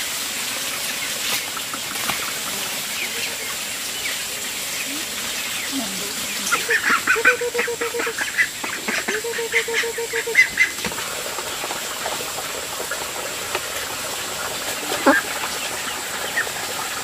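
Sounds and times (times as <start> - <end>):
ducks quacking: 1.5 - 10.9, 14.7 - 16.6.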